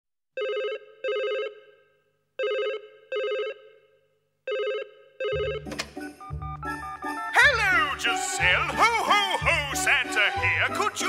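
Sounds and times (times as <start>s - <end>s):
telephone ringing: 0.4s - 3.9s, 4.5s - 6.7s
music: 5.5s - 11.0s.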